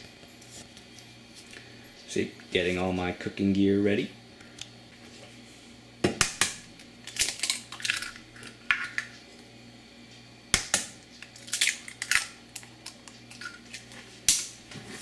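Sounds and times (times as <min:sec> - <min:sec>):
eggs cracking on metal bowl: 0:06.2 - 0:09.1, 0:10.5 - 0:14.5.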